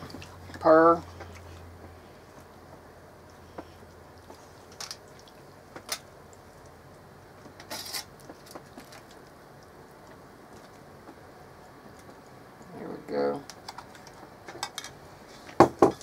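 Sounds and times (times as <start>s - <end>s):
foil clicking and crinkling: 7.6s - 9.3s.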